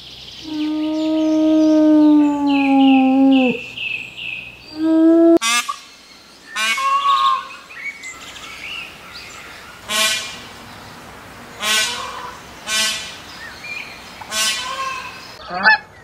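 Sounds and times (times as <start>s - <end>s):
wolf howling: 0.5s - 3.7s, 4.8s - 5.4s
peacock calling harshly: 6.6s - 7.5s, 11.6s - 13.2s, 14.3s - 15.9s.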